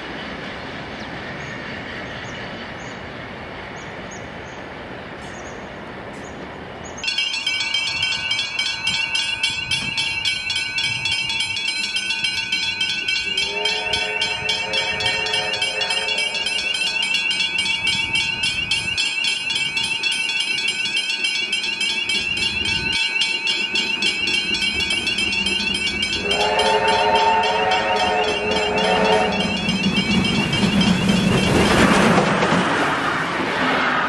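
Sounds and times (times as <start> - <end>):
steam locomotive whistle: 13.4 - 16.9, 26.2 - 29.6.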